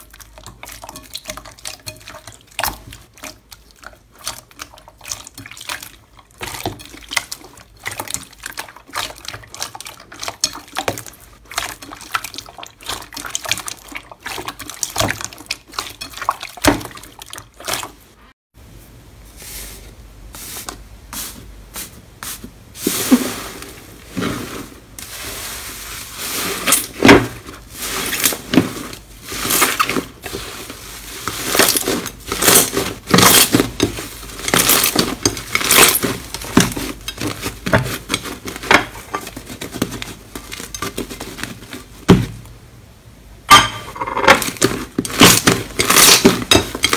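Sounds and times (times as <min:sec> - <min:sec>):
hands squishing slime: 0:00.0 - 0:18.0.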